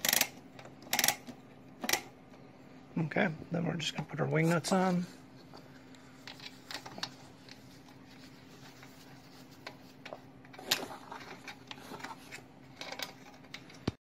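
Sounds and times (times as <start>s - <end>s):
metallic clicks and scrapes: 0.0s - 2.1s
steady low hum: 0.0s - 14.0s.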